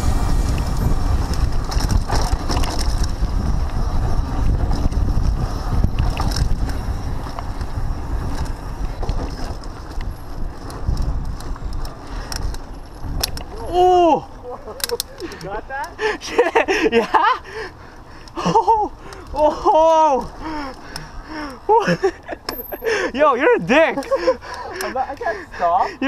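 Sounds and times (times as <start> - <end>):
wind buffeting microphone: 0.0 - 14.4
bike rattling and clicking: 0.0 - 26.0
bike tyres on dirt: 0.0 - 26.0.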